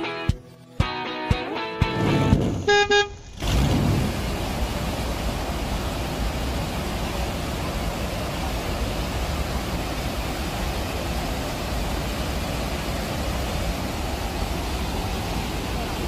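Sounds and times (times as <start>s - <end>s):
waterfall roaring: 3.2s - 16.0s.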